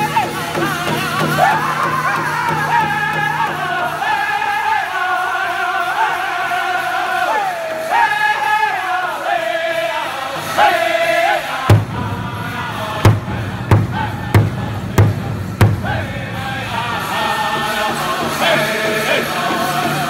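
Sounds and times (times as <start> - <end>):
hard drum strikes: 0.0 - 4.5, 11.6 - 20.0
group singing in high voices: 0.0 - 20.0.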